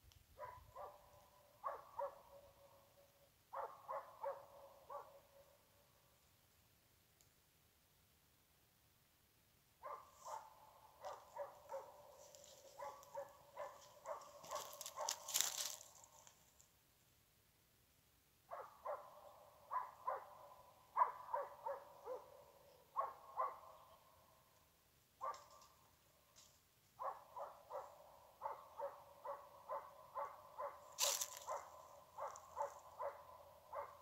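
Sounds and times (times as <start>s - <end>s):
dog barking rapidly: 0.4s - 1.0s, 1.6s - 2.5s, 3.5s - 5.3s, 9.8s - 15.3s, 18.5s - 22.4s, 23.0s - 23.8s, 27.0s - 34.0s.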